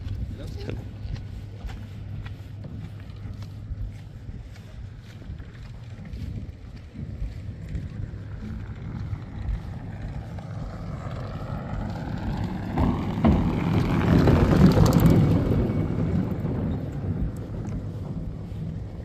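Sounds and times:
engine running: 0:00.0 - 0:19.0
wind buffeting microphone: 0:00.0 - 0:19.0.

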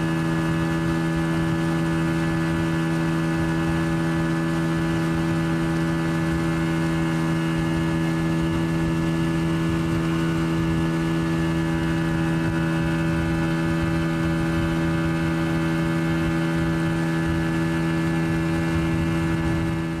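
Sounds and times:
boat engine running: 0:00.0 - 0:20.0.

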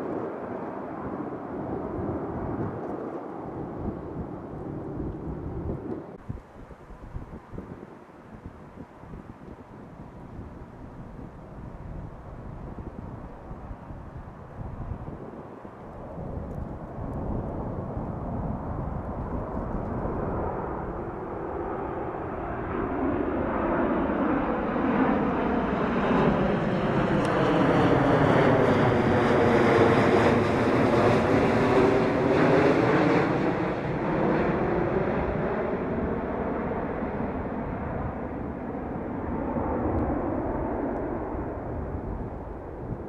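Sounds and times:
jet engine high whine: 0:00.0 - 0:43.0
jet engine roar: 0:00.0 - 0:43.0.

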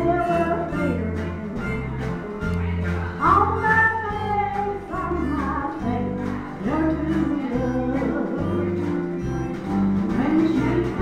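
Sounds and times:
bass notes: 0:00.0 - 0:11.0
woman singing gospel song: 0:10.1 - 0:11.0.

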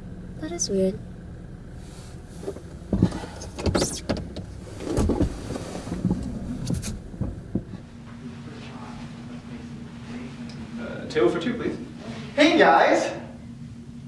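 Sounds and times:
steady low hum: 0:00.0 - 0:14.0
rustling inside a car: 0:01.7 - 0:10.5
knocks and clicks: 0:06.0 - 0:07.8.

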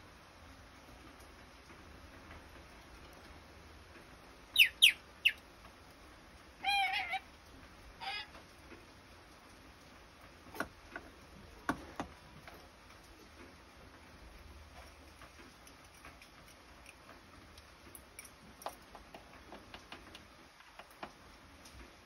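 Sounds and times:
parrot squeaks and calls: 0:04.5 - 0:05.4, 0:06.6 - 0:07.3, 0:08.0 - 0:08.4.

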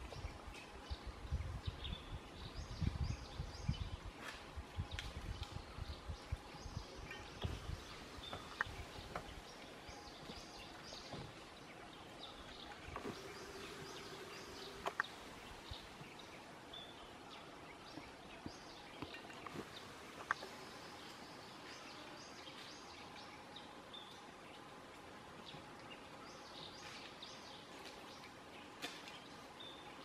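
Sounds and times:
bird chirps: 0:06.6 - 0:11.2.

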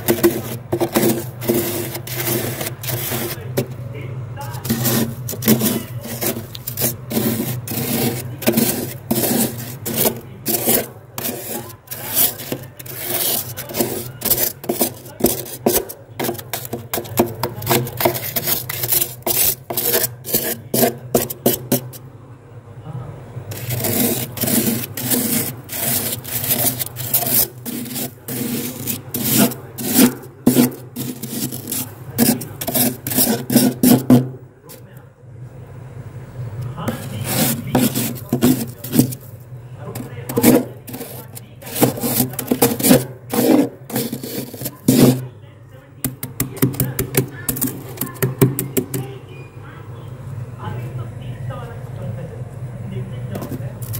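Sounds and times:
knife scraping frost: 0:00.0 - 0:03.8, 0:04.4 - 0:22.0, 0:23.5 - 0:34.3, 0:36.9 - 0:39.3, 0:39.9 - 0:45.3, 0:46.5 - 0:48.3.

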